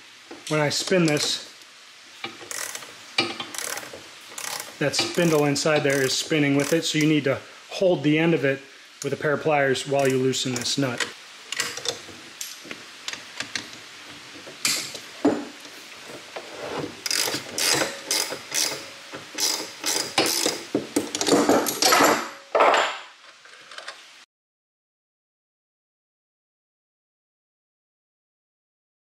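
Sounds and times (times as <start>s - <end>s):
ratchet wrench clicking: 2.2s - 7.0s, 10.0s - 12.0s, 17.0s - 21.3s.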